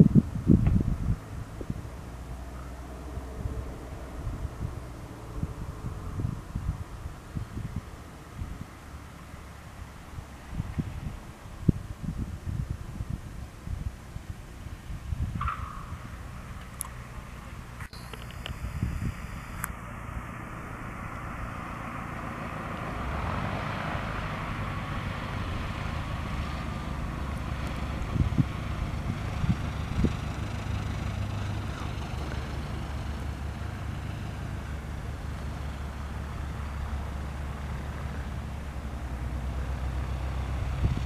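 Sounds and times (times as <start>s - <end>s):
light aircraft engine and propeller: 16.2s - 41.0s.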